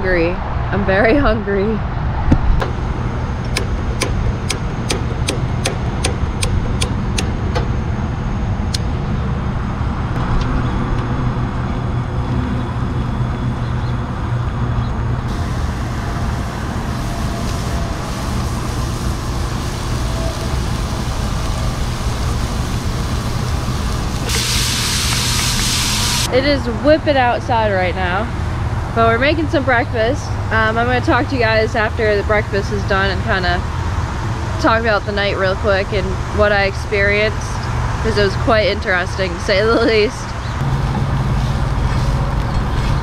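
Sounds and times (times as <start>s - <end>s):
road traffic: 0.0s - 43.0s
wind: 0.0s - 43.0s
food sizzling in skillet: 15.3s - 26.3s.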